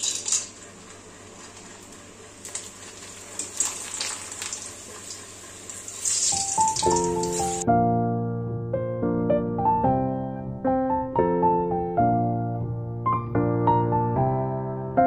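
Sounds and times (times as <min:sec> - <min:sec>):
food sizzling in hot oil: 0:00.0 - 0:07.6
background music: 0:06.5 - 0:15.0.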